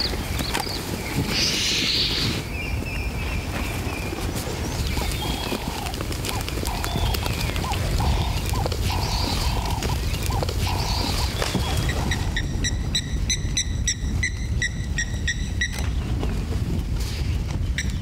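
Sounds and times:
rapid high pulsed calls: 0:04.8 - 0:15.5.

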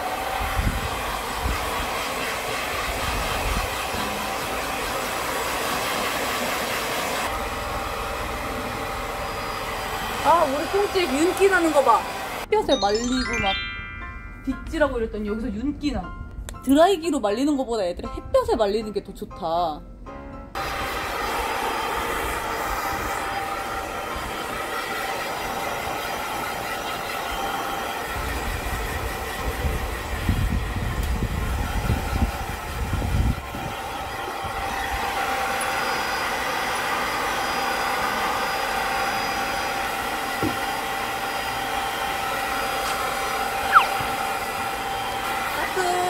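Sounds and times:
hair dryer running: 0:00.0 - 0:13.0, 0:20.6 - 0:46.0
short falling squeak: 0:43.7 - 0:44.1.

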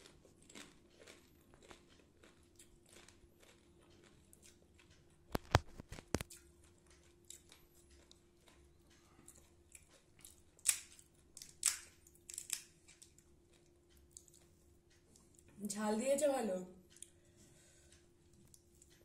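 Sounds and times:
crunching crisp shells: 0:00.0 - 0:14.4
shell cracking by hand: 0:10.6 - 0:13.1.

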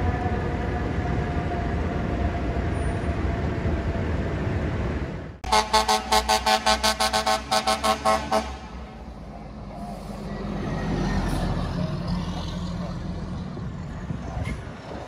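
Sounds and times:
diesel truck engine passing: 0:00.0 - 0:15.0
fire engine horn blasts: 0:05.4 - 0:09.0.

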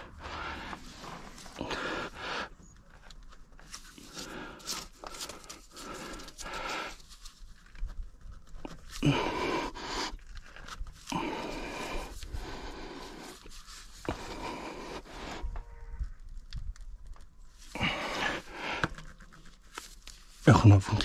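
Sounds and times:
person breathing hard: 0:00.0 - 0:02.6, 0:04.0 - 0:07.1, 0:09.0 - 0:10.4, 0:11.1 - 0:15.6, 0:17.7 - 0:19.0.

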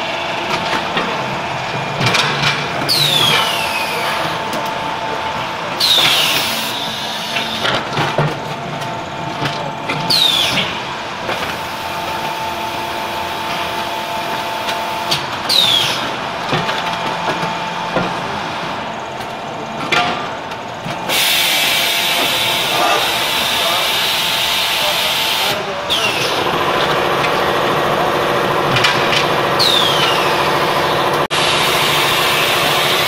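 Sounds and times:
press machine humming: 0:08.6 - 0:33.0.

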